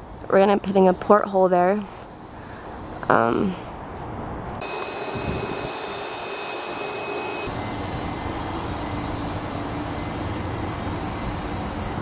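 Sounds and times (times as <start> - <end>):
low outdoor rumble and hiss: 7.5 - 12.0.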